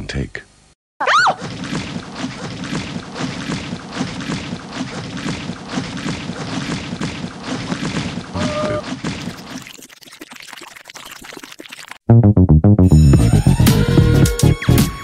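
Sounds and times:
thick liquid chocolate pouring: 9.3 - 12.0.

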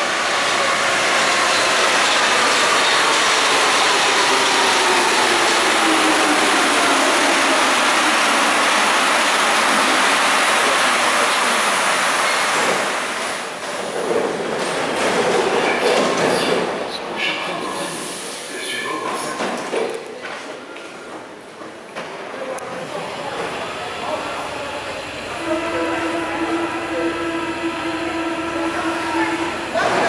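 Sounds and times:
train running gear rushing: 0.0 - 16.9.

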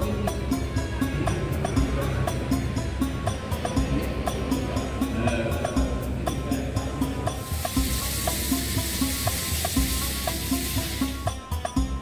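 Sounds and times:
background music with steady beat: 0.0 - 12.0
steady hiss: 7.3 - 11.5.

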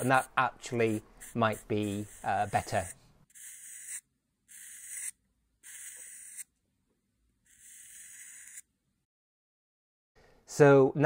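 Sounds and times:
marker drawn on metal: 0.0 - 6.5, 7.5 - 8.7.

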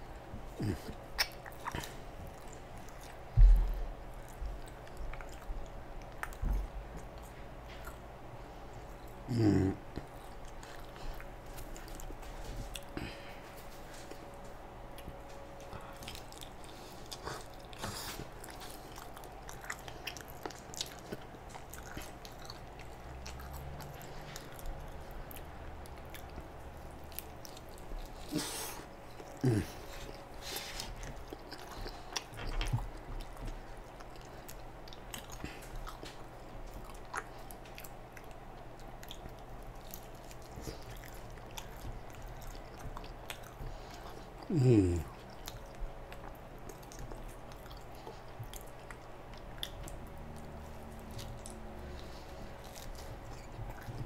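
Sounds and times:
man chewing pizza: 0.0 - 54.0.

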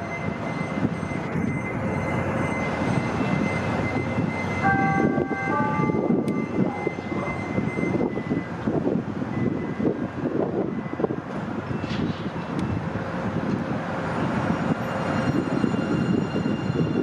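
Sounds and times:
train wheels rumbling on rail: 0.0 - 17.0
cluster of high tones: 4.6 - 8.1.

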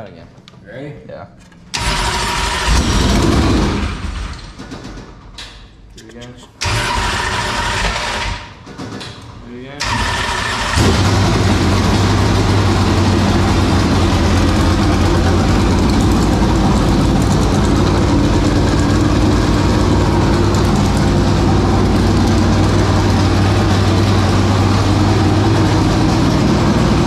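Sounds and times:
race car engine running loudly: 1.8 - 4.1, 9.8 - 27.0.

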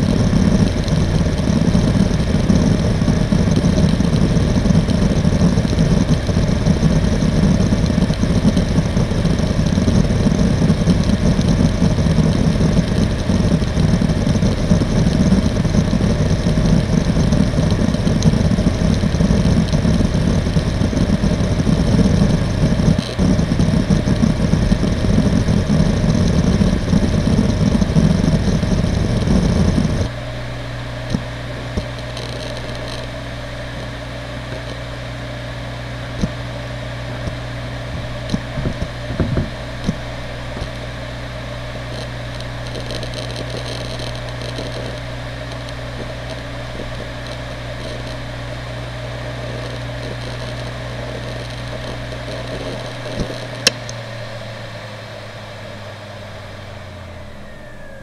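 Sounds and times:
hard drive platters whirring: 0.0 - 58.0
hard drive heads clicking: 31.1 - 34.8, 41.8 - 48.6, 49.3 - 54.0
small click: 49.6 - 54.0.

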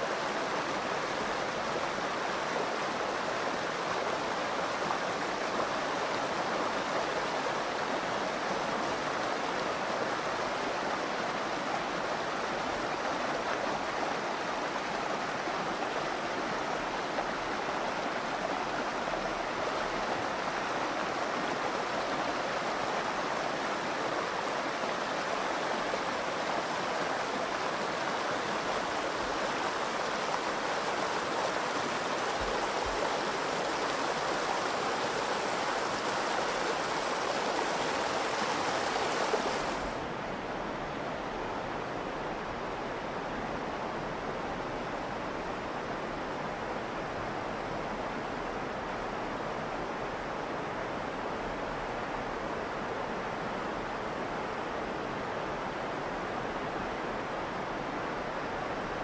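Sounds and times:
river splashing over rocks: 0.0 - 40.0.

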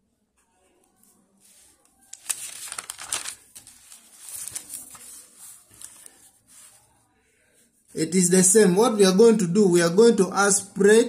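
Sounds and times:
paper rustling and crinkling: 0.9 - 6.9.

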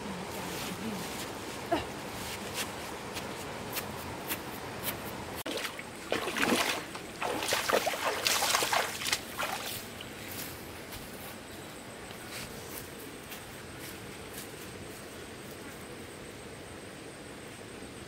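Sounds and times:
stream flowing: 0.0 - 10.9
bare feet splashing in water: 5.4 - 10.1.

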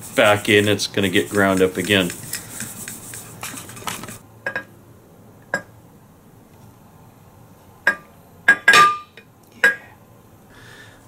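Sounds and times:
kitchenware clinking: 4.5 - 4.7, 7.9 - 9.8.

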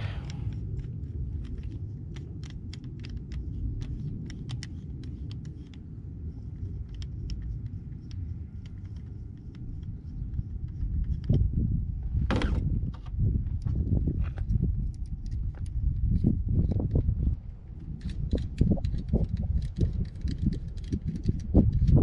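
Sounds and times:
wind on microphone: 0.0 - 22.0.

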